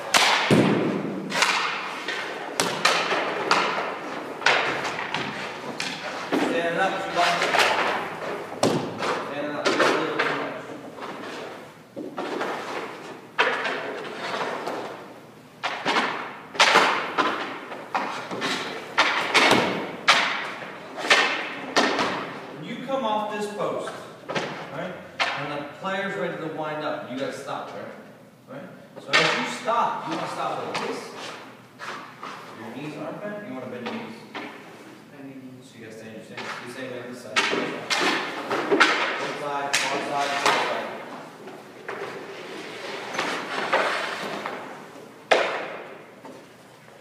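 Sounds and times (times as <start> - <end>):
hockey puck and pad knocks: 0.0 - 10.5, 15.6 - 22.4, 24.3 - 25.5, 36.4 - 41.2, 43.0 - 46.4.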